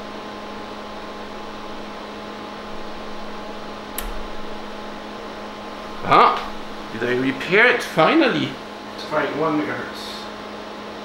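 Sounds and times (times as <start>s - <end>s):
electrical hum and hiss: 0.0s - 11.0s
rotary switch click: 3.9s - 4.4s.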